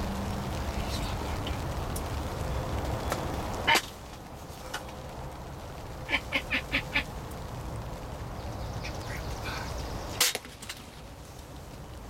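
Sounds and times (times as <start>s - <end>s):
turkeys clucking: 3.6s - 4.0s, 6.0s - 7.1s
loud sharp snap: 10.2s - 10.8s.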